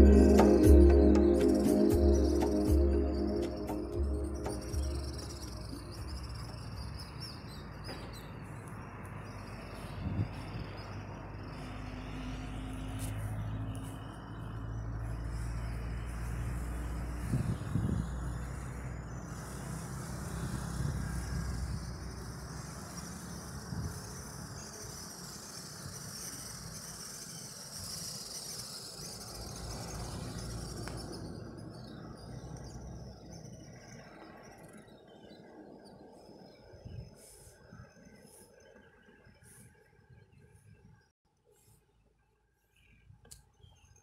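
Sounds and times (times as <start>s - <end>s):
steady high buzz: 0.0s - 6.8s
road traffic rumble: 0.0s - 39.9s.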